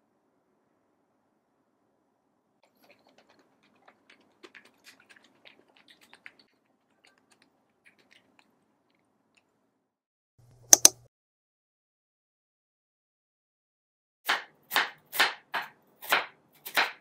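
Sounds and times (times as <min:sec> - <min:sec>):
wooden spoon stirring in bowl: 0:02.6 - 0:08.6.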